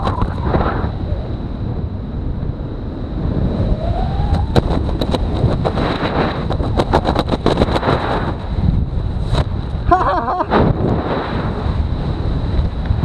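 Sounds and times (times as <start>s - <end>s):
parachute clicks and flaps: 0.0s - 0.8s, 4.3s - 8.6s
wind buffeting microphone: 0.0s - 13.0s.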